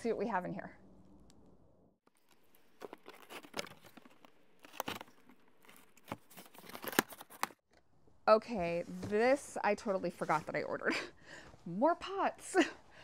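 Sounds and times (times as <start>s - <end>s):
packing tape tearing off cardboard: 2.2s - 7.6s.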